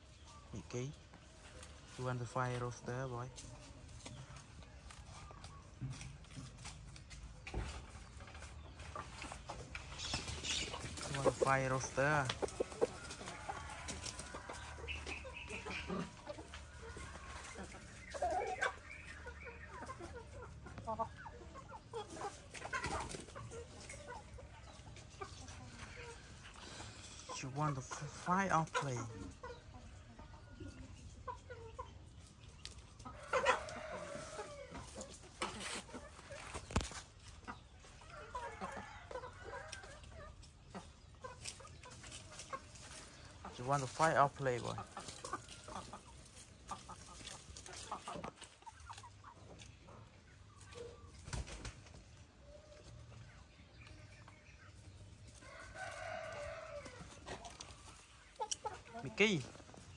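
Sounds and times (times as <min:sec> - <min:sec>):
chickens clucking faintly: 0:00.0 - 0:59.9
rooster clucking: 0:07.5 - 0:32.1.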